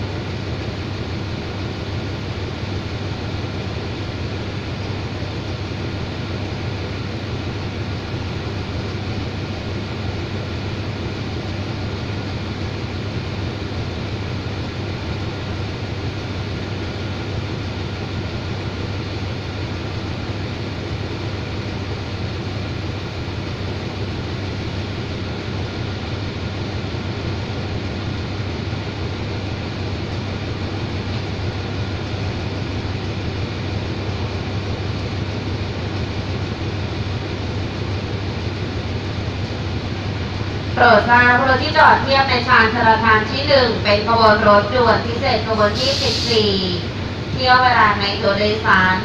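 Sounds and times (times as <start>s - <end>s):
locomotive engine idling: 0.0s - 49.0s.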